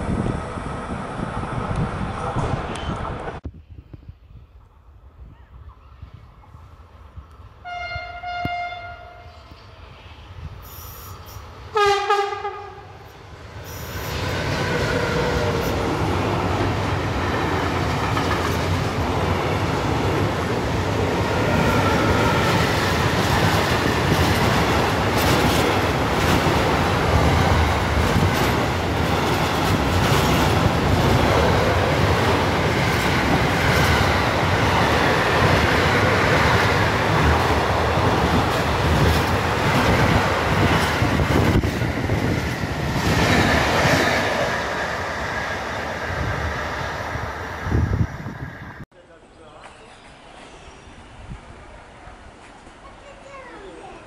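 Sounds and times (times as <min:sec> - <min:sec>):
train wheels on rails: 0:00.0 - 0:04.0, 0:08.4 - 0:48.8
second train passing: 0:00.0 - 0:54.0
train horn: 0:07.6 - 0:09.5, 0:11.7 - 0:13.0.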